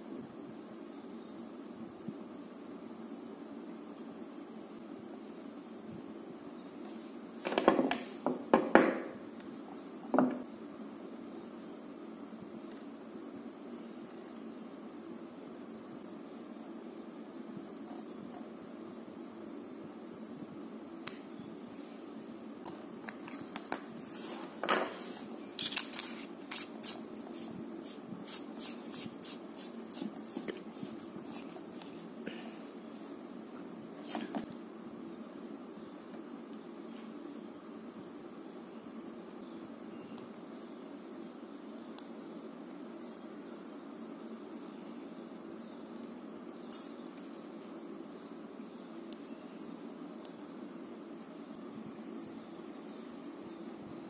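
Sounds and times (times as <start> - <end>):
metal objects knocking on wood: 7.6 - 9.1.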